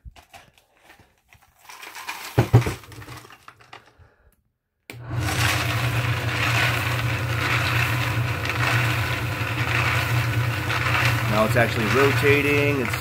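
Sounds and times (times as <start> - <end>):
tumbler motor humming: 4.9 - 13.0.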